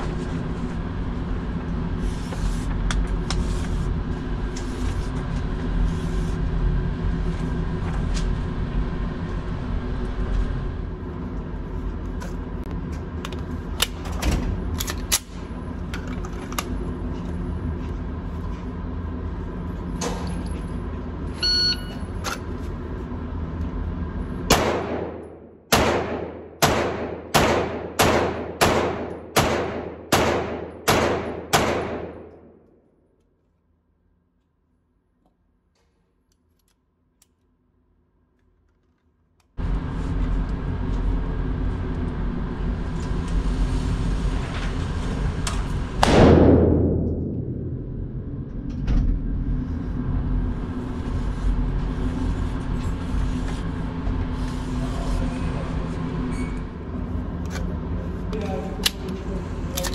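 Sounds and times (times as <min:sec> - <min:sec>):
low machinery hum: 0:00.0 - 0:59.9
pistol shots echoing: 0:24.5 - 0:32.3.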